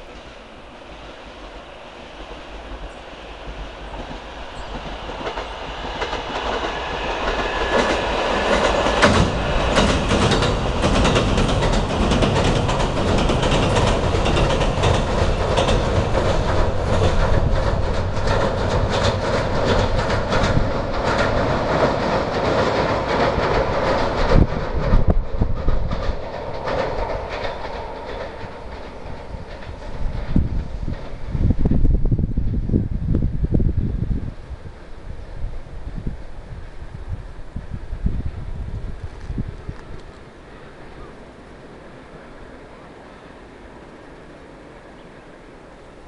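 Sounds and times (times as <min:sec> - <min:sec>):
electric train rumbling over bridge: 0:00.0 - 0:46.0
wheels clicking over rail joints: 0:03.9 - 0:31.8.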